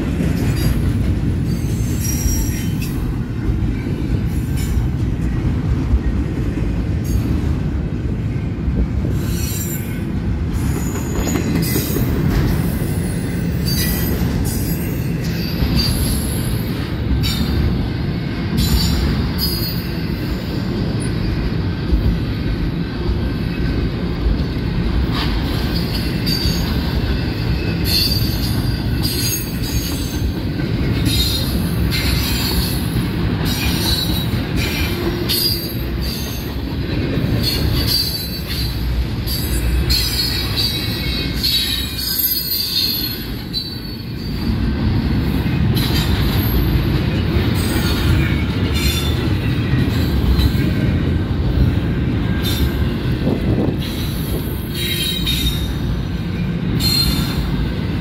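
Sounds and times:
train wheels rumbling on rail: 0.0 - 58.0
high-pitched wheel squeals: 37.4 - 44.4.

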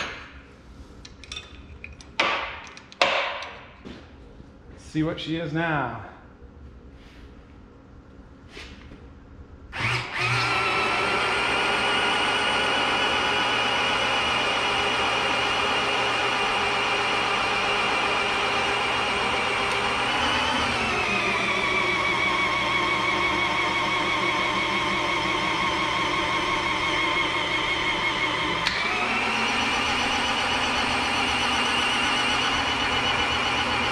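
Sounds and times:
electric drill motor whine: 9.7 - 33.9.

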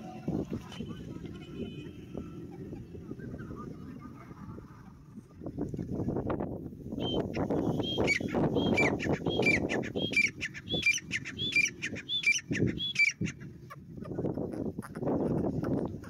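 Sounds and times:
francolin calling: 7.0 - 13.4.

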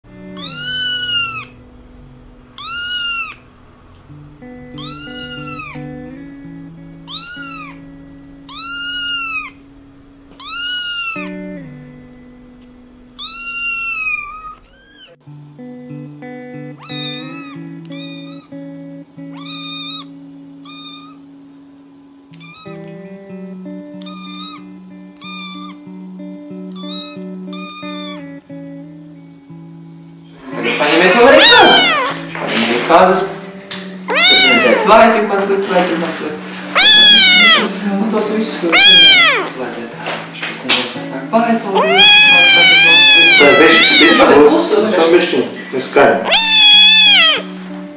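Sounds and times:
background music: 0.1 - 13.2
kittens meowing: 0.3 - 1.7, 2.5 - 11.9, 13.1 - 15.2, 16.7 - 18.6, 19.3 - 21.3, 22.3 - 23.0, 23.9 - 26.0, 26.6 - 28.4, 30.7 - 32.4, 33.8 - 36.0, 36.6 - 37.8, 38.6 - 39.6, 41.7 - 45.2, 46.2 - 47.6.

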